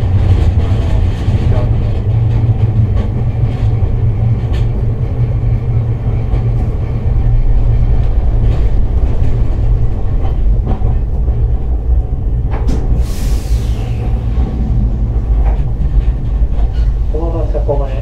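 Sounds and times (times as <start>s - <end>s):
tram rumble on rails: 0.0s - 18.0s.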